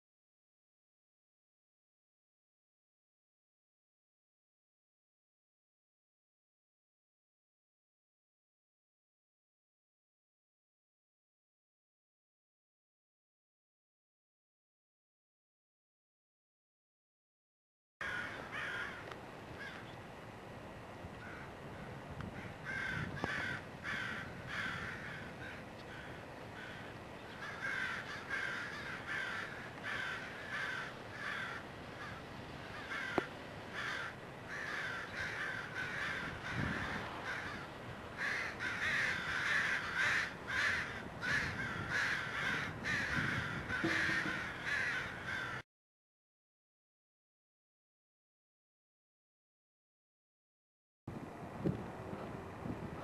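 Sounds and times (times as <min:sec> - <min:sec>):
crows cawing: 0:18.0 - 0:19.9, 0:21.2 - 0:45.6.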